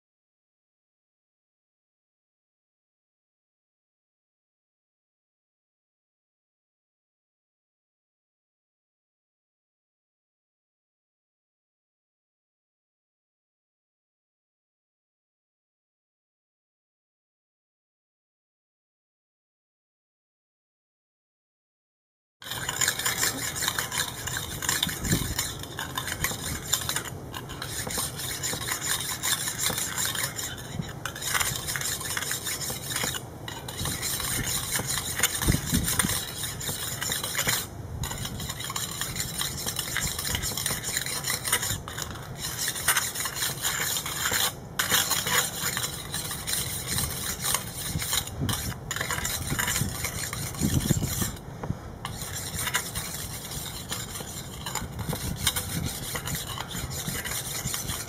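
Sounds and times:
pumice stone scraping grill grate: 22.4s - 58.0s.

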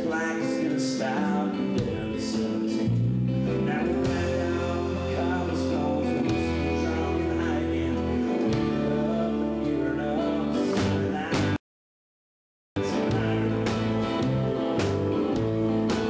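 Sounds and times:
bass: 0.0s - 11.6s, 12.8s - 16.0s
man singing: 0.0s - 11.6s, 12.8s - 16.0s
strummed acoustic guitar: 0.0s - 11.6s, 12.8s - 16.0s.

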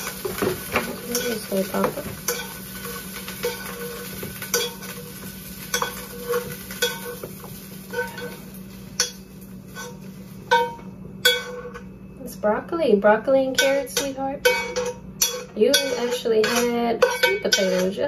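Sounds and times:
food sizzling in a frying pan: 0.0s - 11.8s, 13.6s - 18.0s
utensil clinking and scraping pan: 0.0s - 11.9s, 13.5s - 18.0s.

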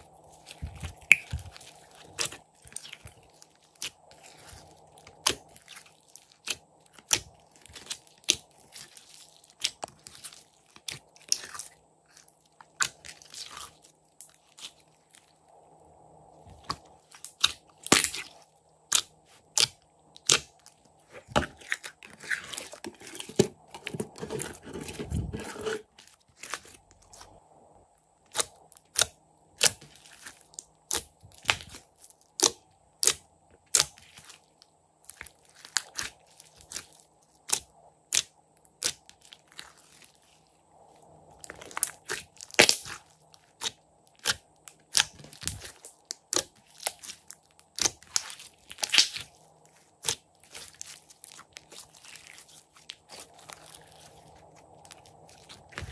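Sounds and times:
slime squishing with wet clicks: 0.4s - 15.3s, 28.3s - 40.1s, 41.3s - 55.9s.

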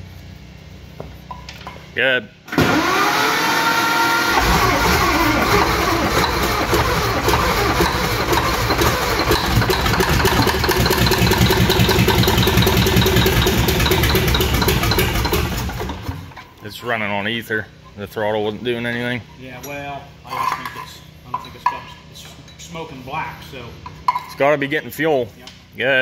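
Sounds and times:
old diesel engine running roughly: 4.2s - 16.4s.

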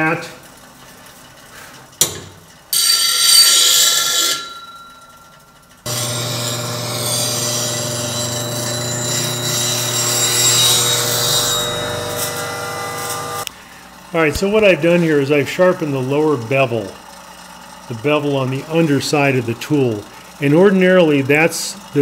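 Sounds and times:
grinder motor hum: 5.8s - 22.0s
grinder grinding hiss: 5.9s - 22.0s.

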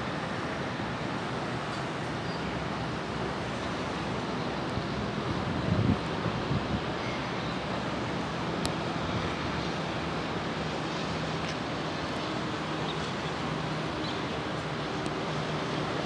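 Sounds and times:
road traffic: 0.0s - 16.0s.

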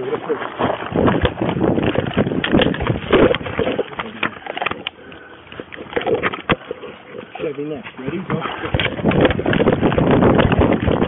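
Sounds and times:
uniform and gear rustling and knocking: 0.3s - 4.9s.

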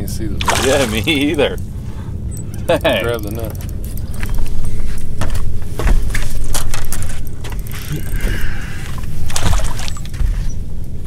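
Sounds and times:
steady low rumble: 0.0s - 11.0s
fishing gear clattering on deck: 5.3s - 8.4s.

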